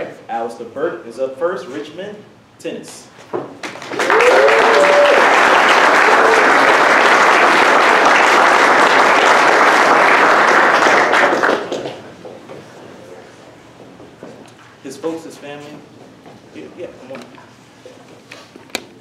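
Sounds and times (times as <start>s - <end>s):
audience applauding: 3.6s - 12.1s
whooping call: 4.0s - 6.8s.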